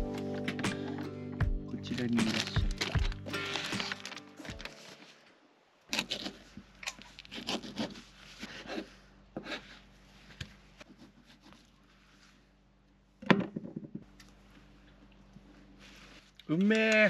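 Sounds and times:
knife scraping fish: 0:05.9 - 0:09.9.

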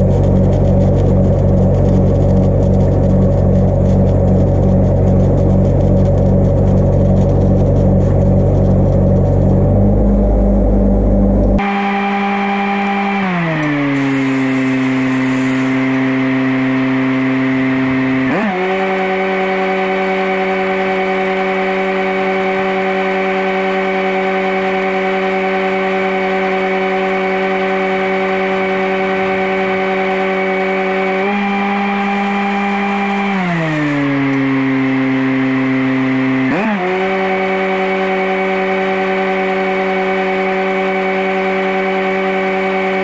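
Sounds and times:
welding machine engine running: 0:00.0 - 0:09.7, 0:11.6 - 0:16.7, 0:18.6 - 0:34.8
welding arc: 0:14.0 - 0:16.1, 0:32.0 - 0:34.1.

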